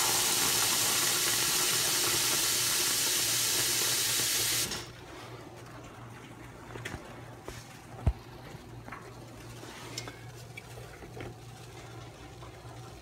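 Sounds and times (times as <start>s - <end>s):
faucet water stream filling scoop: 0.0s - 4.8s.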